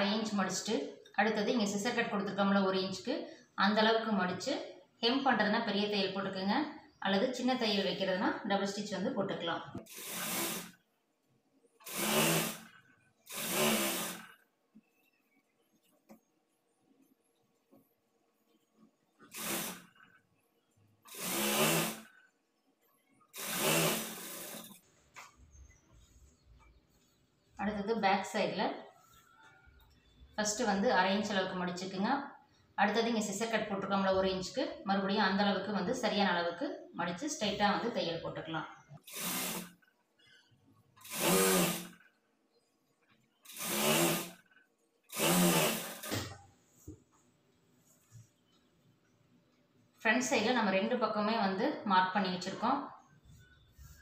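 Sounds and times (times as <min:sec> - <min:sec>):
sewing machine stitching: 0:09.8 - 0:10.8, 0:11.8 - 0:14.4, 0:19.2 - 0:20.2, 0:21.0 - 0:22.3, 0:23.4 - 0:24.9, 0:39.0 - 0:39.9, 0:41.0 - 0:42.1, 0:43.4 - 0:46.4.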